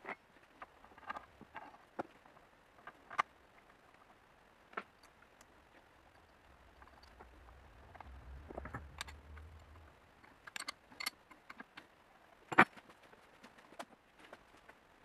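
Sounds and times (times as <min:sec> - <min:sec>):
faint low rumble: 0:00.4 - 0:12.4
metal fixture clicking and clinking: 0:06.2 - 0:11.6.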